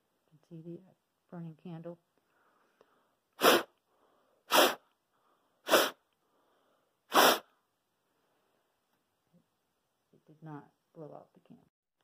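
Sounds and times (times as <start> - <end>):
breath puffs through cloth mask: 2.4 - 7.6.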